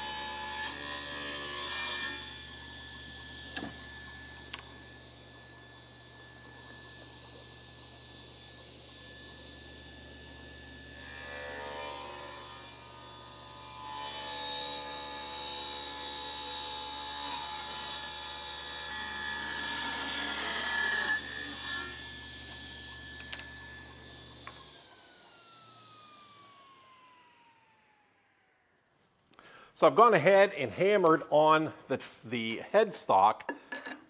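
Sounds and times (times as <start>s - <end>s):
table saw cutting wood: 0.0s - 28.6s
saw motor humming: 0.0s - 28.7s
saw blade whine coasting down: 0.0s - 30.4s.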